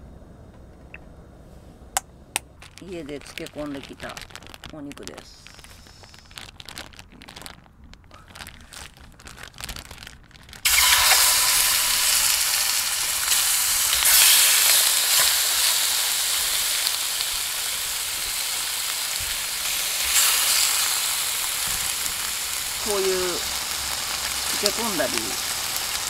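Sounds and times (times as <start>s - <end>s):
plastic bag crinkling: 2.5s - 26.0s
meat sizzling in a hot pan: 10.6s - 26.0s.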